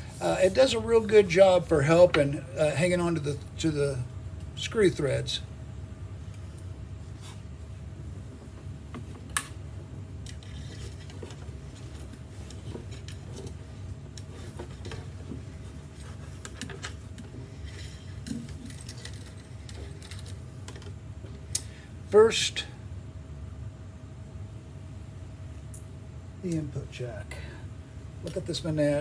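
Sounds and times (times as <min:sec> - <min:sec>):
steady low hum: 0:00.0 - 0:29.0
handling rustling: 0:10.3 - 0:21.4.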